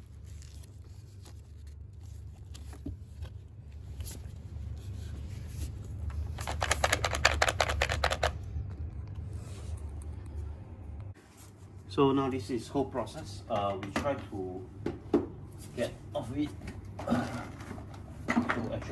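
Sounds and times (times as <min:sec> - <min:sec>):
steady low hum: 0:00.0 - 0:18.9
fast rattling clicks: 0:06.4 - 0:08.4.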